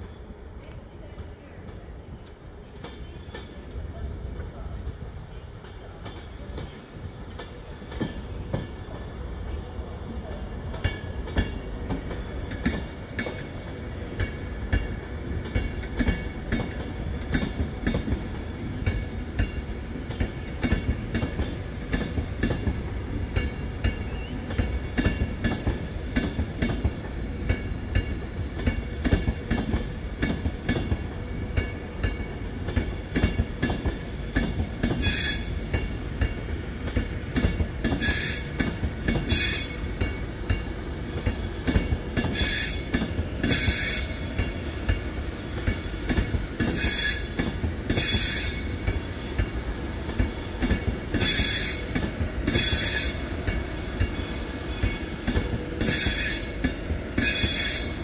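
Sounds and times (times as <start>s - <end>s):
low train rumble: 0.0s - 58.0s
train wheels clicking over rails: 4.9s - 58.0s.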